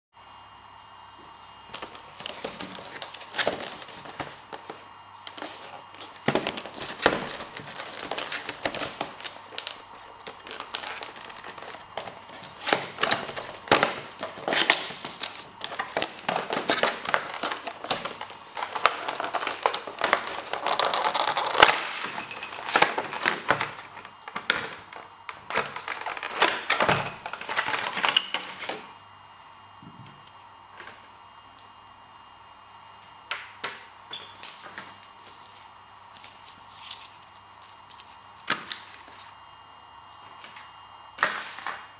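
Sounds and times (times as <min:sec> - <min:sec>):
cardboard packaging rustling: 0:01.6 - 0:28.8, 0:34.4 - 0:39.4.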